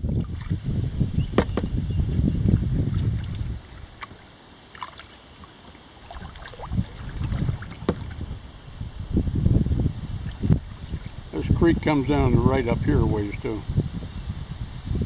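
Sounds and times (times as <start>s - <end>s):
paddle splashing through water: 0.0s - 0.6s, 1.2s - 8.6s, 10.1s - 11.3s
wind rumble on microphone: 0.0s - 4.3s, 6.0s - 15.0s
water dripping off paddle: 2.9s - 8.3s.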